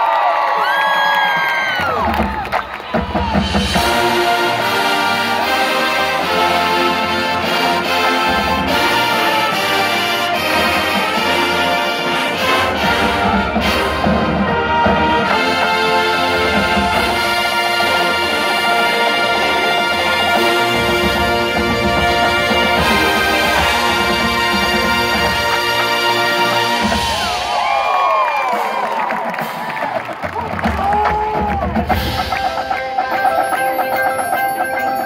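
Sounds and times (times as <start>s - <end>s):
marching percussion: 1.2s - 35.0s
brass horns playing chords: 3.7s - 27.2s.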